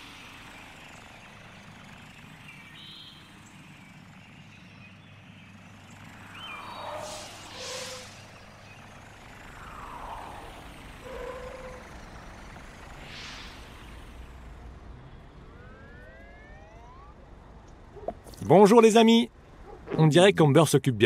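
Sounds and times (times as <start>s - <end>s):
cartoon engine hum: 0.0s - 18.4s
rising tones: 5.7s - 18.1s
falling whoosh: 6.2s - 14.7s.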